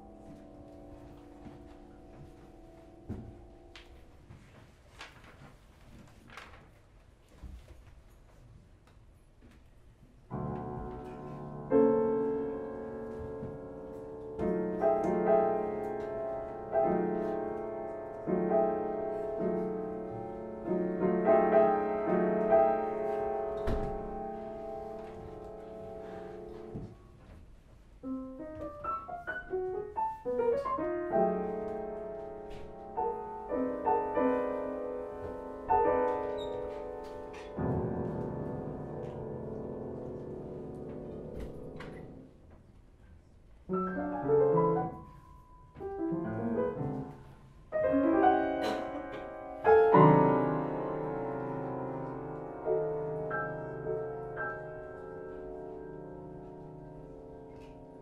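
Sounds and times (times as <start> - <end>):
upright piano playing: 10.3 - 27.0, 28.0 - 42.4, 43.7 - 58.0.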